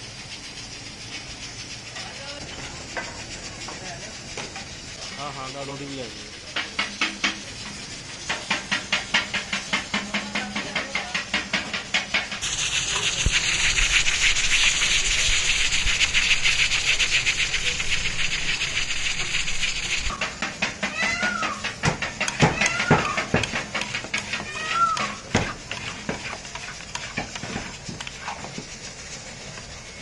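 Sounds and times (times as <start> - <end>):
hiss of escaping steam: 0.0 - 30.0
pressure cooker valve puffing: 6.2 - 30.0.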